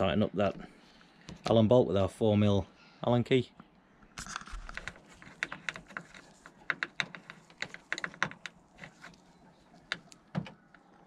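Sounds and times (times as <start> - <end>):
gloves rustling: 4.3 - 11.0
small clicks and taps: 4.5 - 9.2.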